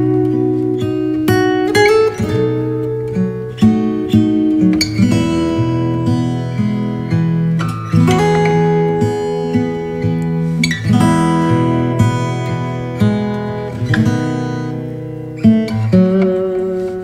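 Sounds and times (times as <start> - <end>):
acoustic guitar playing: 0.0 - 17.0.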